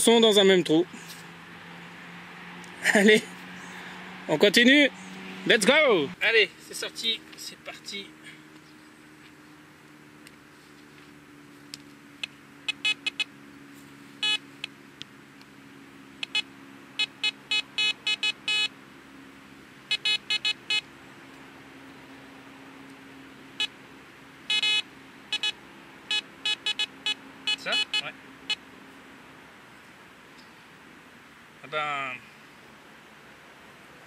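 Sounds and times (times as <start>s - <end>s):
metal detector beeps: 12.7s - 13.3s, 14.2s - 14.4s, 16.2s - 18.7s, 19.9s - 20.8s, 24.5s - 28.6s.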